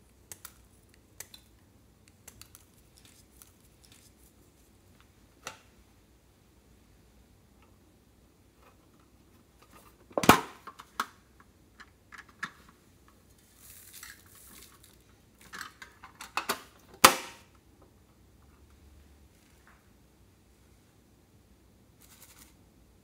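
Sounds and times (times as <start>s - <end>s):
soft rustle: 2.4s - 5.2s, 12.8s - 15.5s.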